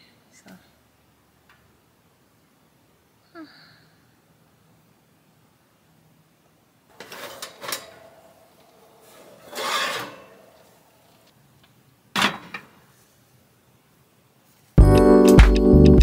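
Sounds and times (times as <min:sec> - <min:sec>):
dish scraping over metal rack: 0:06.9 - 0:11.3
oven door opening: 0:06.9 - 0:11.3.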